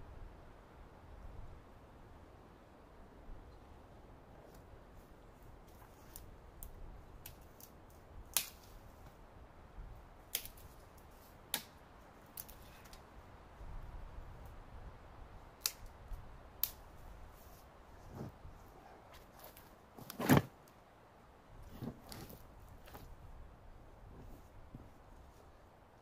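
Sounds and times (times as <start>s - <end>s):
twigs snapping underfoot: 5.6s - 9.2s, 10.2s - 13.1s, 15.6s - 17.0s
faint low rustle: 17.0s - 20.6s, 21.5s - 25.8s.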